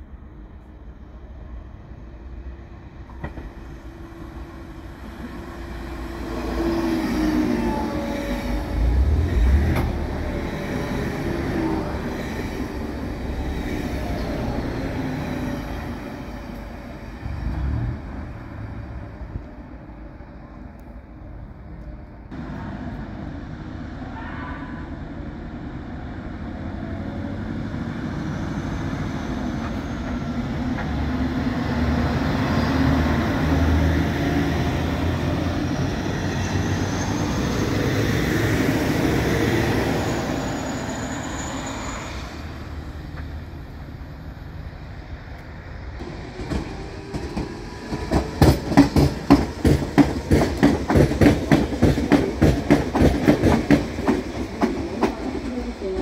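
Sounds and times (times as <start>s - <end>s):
diesel train passing: 0.0s - 56.0s
train wheels clacking over rail joints: 46.0s - 56.0s.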